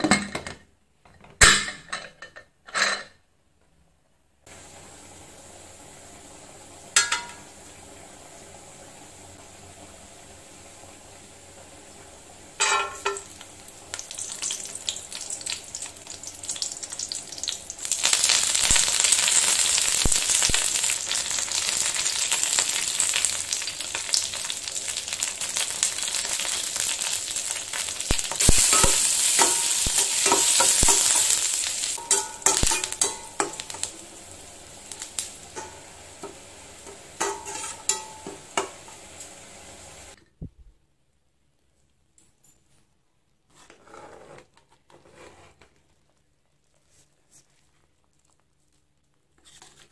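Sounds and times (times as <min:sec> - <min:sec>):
food sizzling in hot oil: 0:04.5 - 0:40.2.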